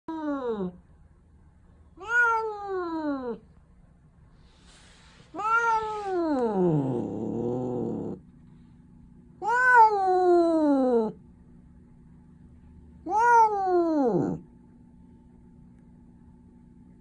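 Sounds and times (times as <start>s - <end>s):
cat yowling: 2.0s - 3.4s, 5.3s - 8.2s, 9.4s - 11.2s, 13.0s - 14.4s.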